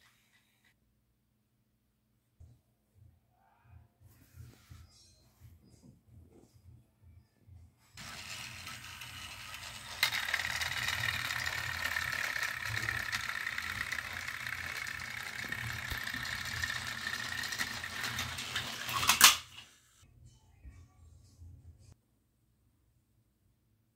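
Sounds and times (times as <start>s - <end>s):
loud clatter: 8.0s - 19.4s
toy train motors whirring: 8.0s - 19.8s.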